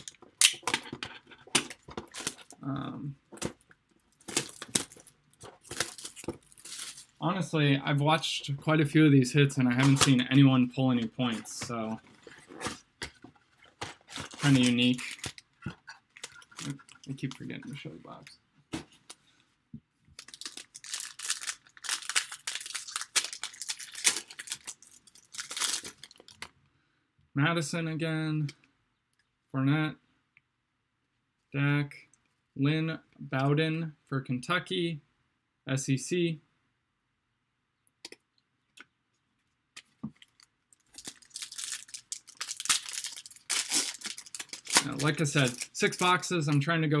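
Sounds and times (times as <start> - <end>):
wrapper crinkling and tearing: 0.0 - 2.6, 4.1 - 7.2, 11.2 - 17.6, 20.1 - 26.5, 40.1 - 46.3.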